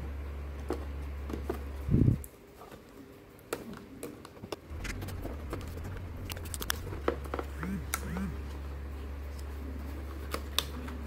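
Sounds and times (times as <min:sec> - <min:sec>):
steady low hum: 0:00.0 - 0:02.3, 0:04.6 - 0:11.0.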